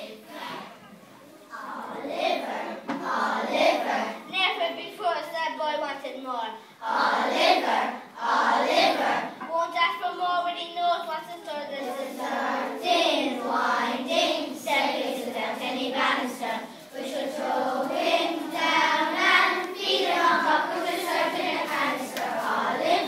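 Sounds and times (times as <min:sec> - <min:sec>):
children's choir singing: 0:00.0 - 0:04.3, 0:06.8 - 0:09.5, 0:11.8 - 0:23.0.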